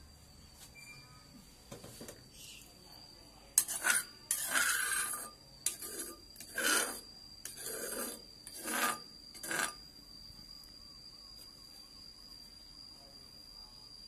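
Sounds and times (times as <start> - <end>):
kitchen utensil scraping: 3.6 - 9.8.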